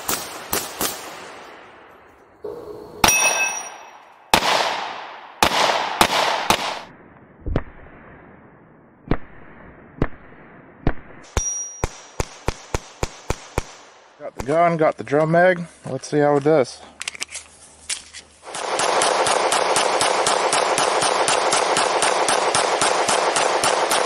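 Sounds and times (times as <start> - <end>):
pistol gunshots: 0.0 - 1.5, 3.0 - 6.9, 9.0 - 14.0, 18.4 - 24.0
steel target plate ringing: 2.4 - 4.3, 11.3 - 12.0.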